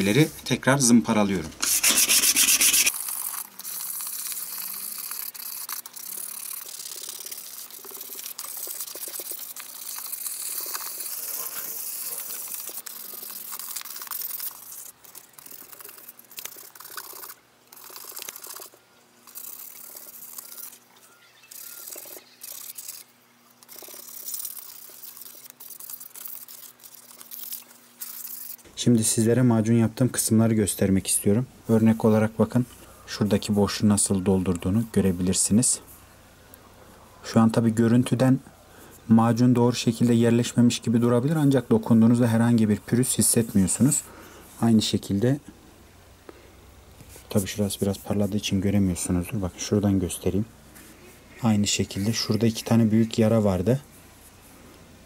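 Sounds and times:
sandpaper rubbing on metal: 0:01.6 - 0:18.6.

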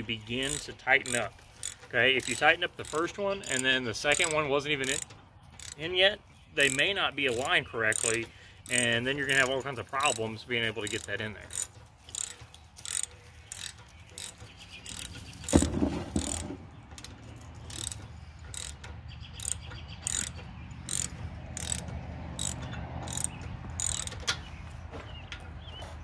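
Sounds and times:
socket ratchet clicking: 0:00.4 - 0:05.8, 0:06.6 - 0:10.2, 0:10.8 - 0:24.4.

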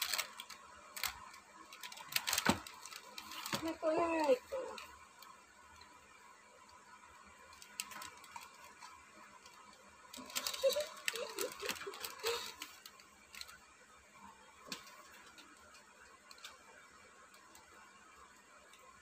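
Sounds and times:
cardboard packaging rustling: 0:00.0 - 0:04.8, 0:10.2 - 0:13.6.

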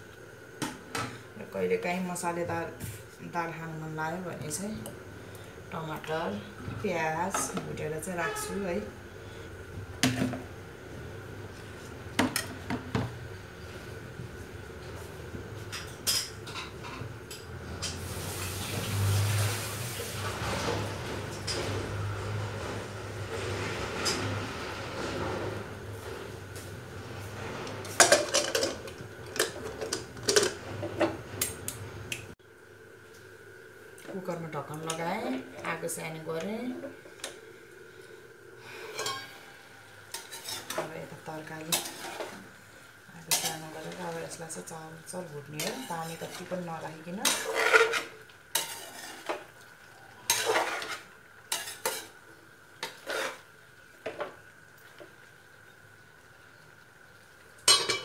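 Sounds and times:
spoon scraping vegetables in pan: 0:40.1 - 0:42.5, 0:43.2 - 0:44.5, 0:45.5 - 0:49.6, 0:50.3 - 0:52.2, 0:52.8 - 0:53.5.

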